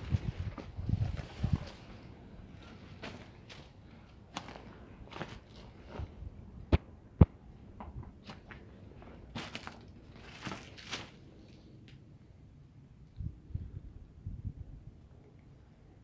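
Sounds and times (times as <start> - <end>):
footsteps on gravel: 4.3 - 6.1, 8.2 - 11.2.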